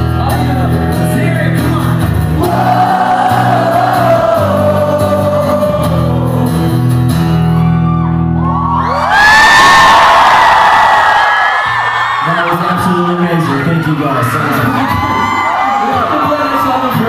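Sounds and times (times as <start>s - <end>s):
acoustic guitar: 0.0s - 9.9s
person singing: 0.1s - 7.0s
crowd cheering and whooping: 2.4s - 6.4s, 7.3s - 17.0s.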